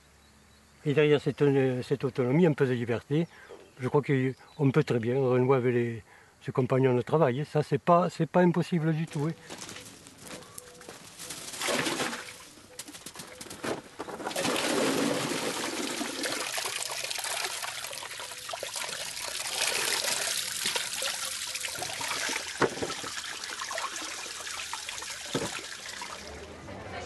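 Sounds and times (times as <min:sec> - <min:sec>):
water running: 0:14.3 - 0:26.6.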